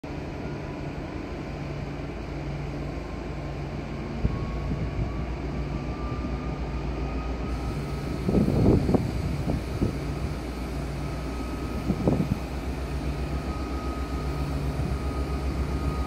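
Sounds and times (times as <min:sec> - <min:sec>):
locomotive diesel engine: 0:00.0 - 0:16.0
faint rising whine: 0:04.2 - 0:16.0.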